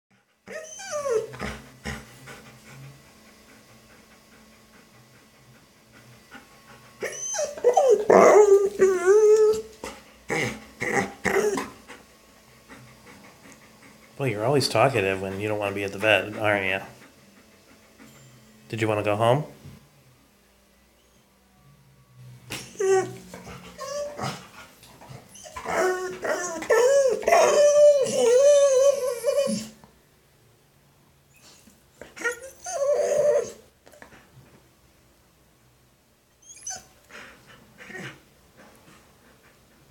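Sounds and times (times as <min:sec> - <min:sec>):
dog whining grumble: 0:00.5 - 0:02.0, 0:07.0 - 0:12.0, 0:22.6 - 0:24.5, 0:25.1 - 0:29.8, 0:31.3 - 0:33.6, 0:36.4 - 0:36.9, 0:37.8 - 0:38.2.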